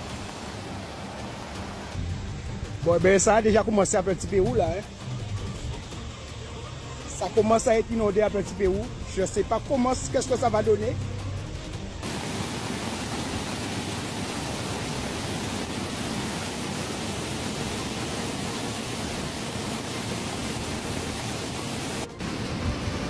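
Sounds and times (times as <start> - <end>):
floodwater rushing over wall: 0.0 - 2.0, 12.0 - 23.0.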